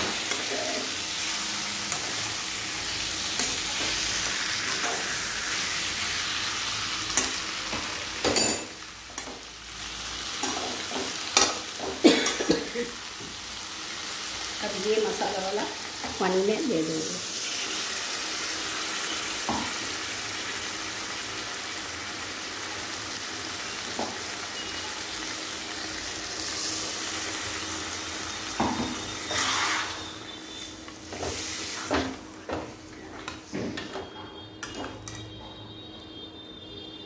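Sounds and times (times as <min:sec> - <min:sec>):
curry sizzling in a pan: 0:00.0 - 0:33.5
metal spatula clinking on pan: 0:08.2 - 0:09.3.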